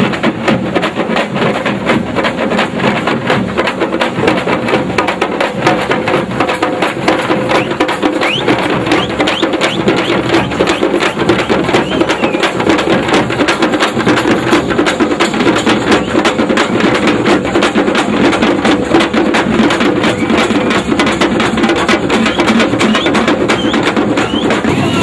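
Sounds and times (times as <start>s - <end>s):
fast steady drumming: 0.0s - 25.0s.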